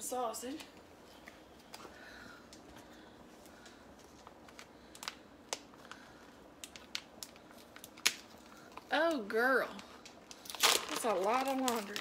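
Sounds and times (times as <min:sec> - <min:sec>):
plastic wrapping crinkling: 0:03.5 - 0:12.0.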